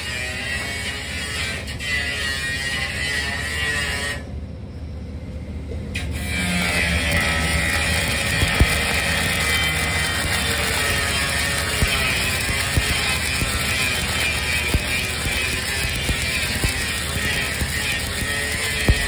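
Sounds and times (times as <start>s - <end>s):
welding arc crackling and hissing: 0.0s - 4.1s, 6.2s - 19.0s
welding arc sharp pop: 6.2s - 19.0s.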